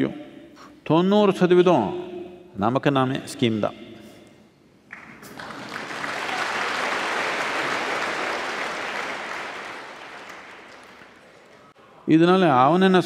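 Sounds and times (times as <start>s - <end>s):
audience applauding: 4.9s - 11.7s.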